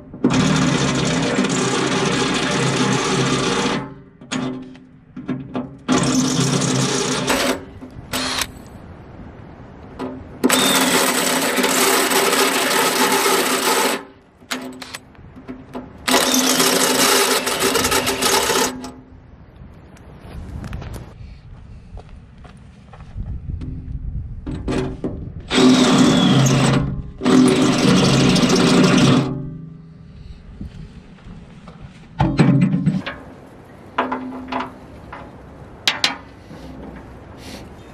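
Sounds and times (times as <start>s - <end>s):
cordless drill boring through steel: 0.3s - 4.4s, 5.9s - 8.5s, 10.5s - 14.0s, 16.1s - 18.9s, 25.5s - 29.3s.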